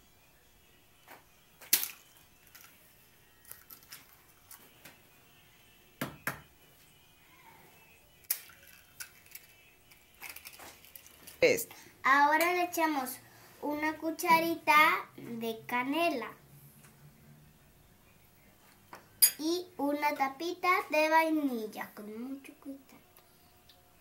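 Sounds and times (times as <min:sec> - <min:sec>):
eggs knocking on glass bowl: 0:06.0 - 0:06.5
eggshell clicks: 0:08.2 - 0:09.5.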